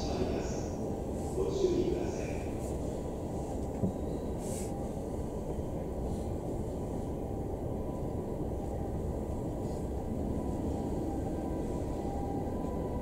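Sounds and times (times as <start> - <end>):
train car low hum: 0.0 - 13.0.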